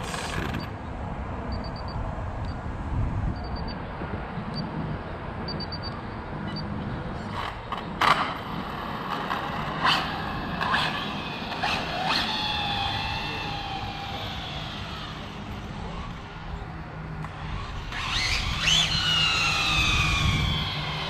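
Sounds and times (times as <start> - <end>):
rc car motor whine: 0.0 - 0.7, 9.1 - 21.0.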